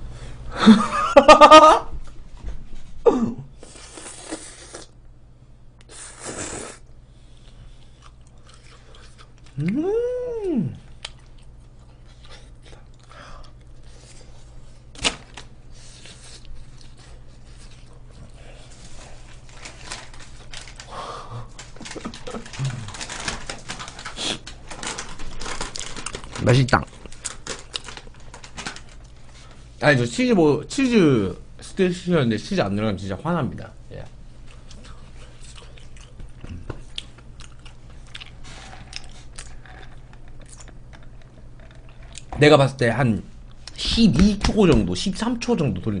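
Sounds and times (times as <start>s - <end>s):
low steady hum: 0.0s - 46.0s
person chewing food: 6.2s - 10.0s, 10.8s - 14.7s, 34.4s - 42.3s.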